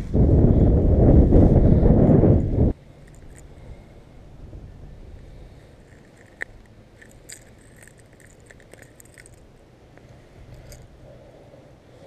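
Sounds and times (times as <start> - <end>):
metallic clicks of fishing hooks: 3.0 - 3.6, 5.7 - 10.9.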